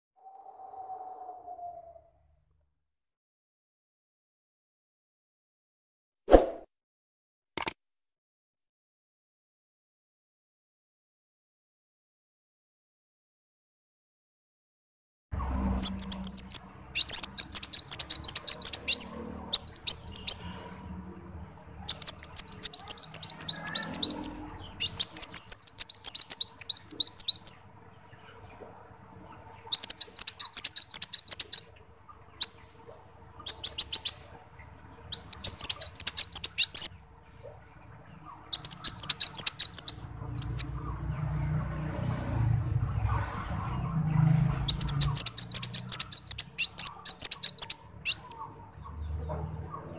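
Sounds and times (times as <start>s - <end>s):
sunbird chirping song: 15.4s - 20.6s, 21.8s - 28.5s, 29.3s - 41.6s, 44.6s - 49.9s.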